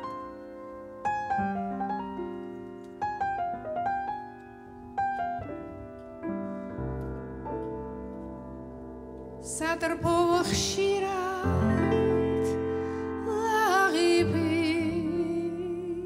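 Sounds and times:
piano playing: 0.0s - 16.0s.

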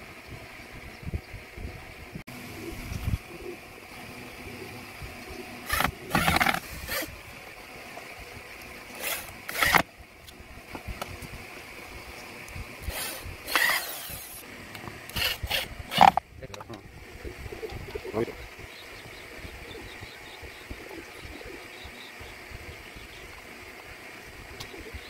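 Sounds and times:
electric drill drilling into wood: 5.6s - 7.2s, 8.9s - 9.9s, 12.8s - 14.4s, 15.1s - 16.2s.

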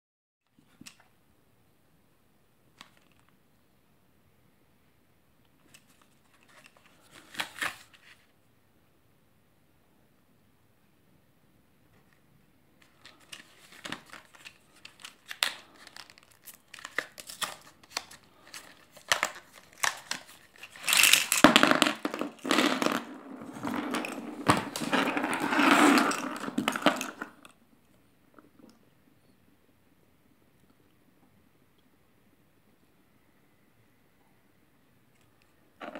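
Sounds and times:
packaging clicks and rustles: 5.7s - 8.2s, 12.8s - 27.4s
packaging crinkling and tearing: 5.8s - 8.2s, 12.8s - 22.6s.

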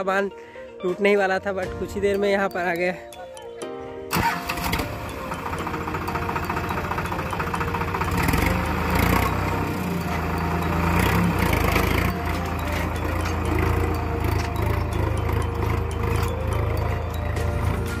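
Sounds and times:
tractor diesel engine under load: 4.1s - 18.0s.

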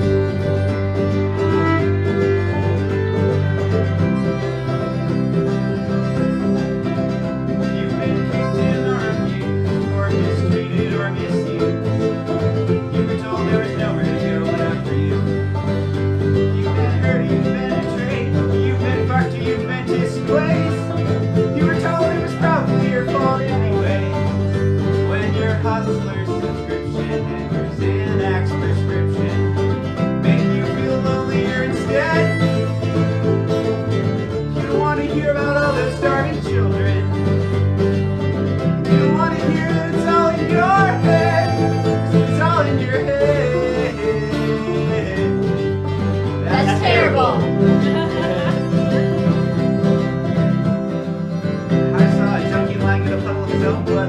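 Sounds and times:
bluegrass string band playing: 0.0s - 54.0s.

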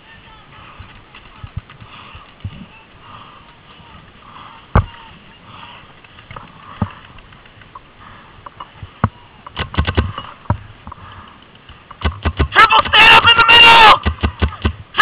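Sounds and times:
paintball markers firing: 9.5s - 10.2s, 12.0s - 13.0s, 13.9s - 14.8s.

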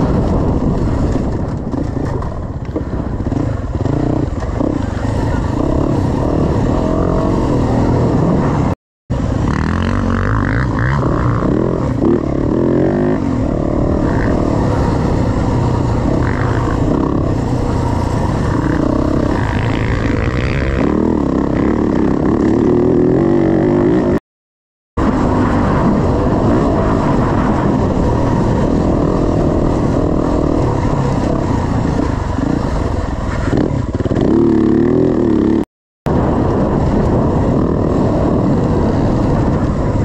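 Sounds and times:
dirt bike engine revving: 3.1s - 24.2s, 25.0s - 35.7s.

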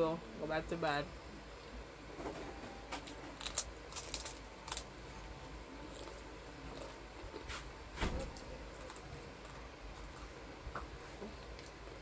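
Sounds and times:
crackers being chewed: 2.9s - 12.0s.

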